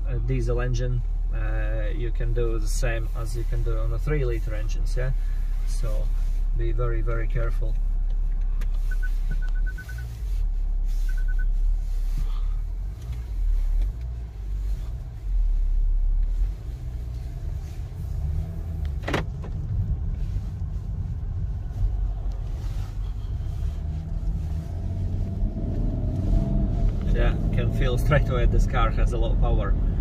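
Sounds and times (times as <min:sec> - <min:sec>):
car engine and road rumble: 0:00.0 - 0:30.0
short high beeps: 0:08.9 - 0:10.1, 0:11.1 - 0:11.5.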